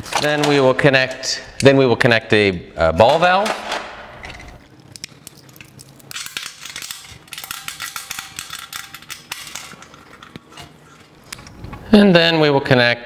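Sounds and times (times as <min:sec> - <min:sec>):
steel fittings clinking and rattling: 0:04.3 - 0:11.2.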